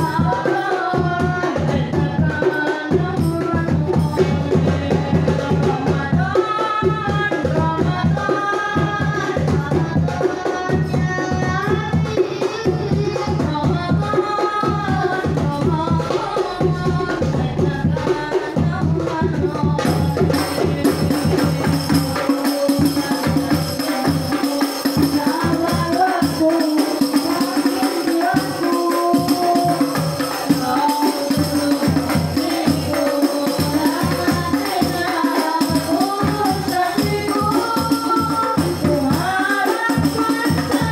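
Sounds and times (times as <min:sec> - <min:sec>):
hand drums playing fast rhythm: 0:00.0 - 0:40.9
voices singing melody: 0:00.0 - 0:40.9.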